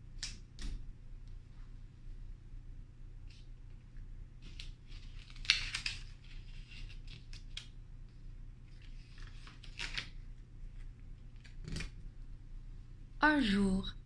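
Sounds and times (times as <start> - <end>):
paper rustling and scraping: 4.4 - 7.7, 8.6 - 10.2.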